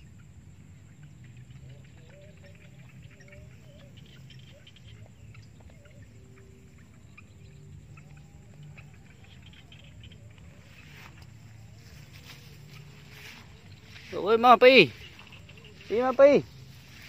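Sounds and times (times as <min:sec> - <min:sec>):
faint chirping animal calls: 0:00.0 - 0:17.0
footsteps through long grass: 0:07.9 - 0:17.0.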